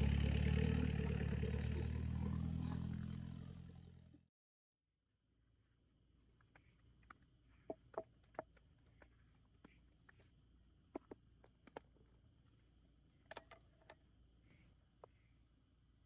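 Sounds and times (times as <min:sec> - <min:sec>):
crickets chirping: 0:05.2 - 0:16.0.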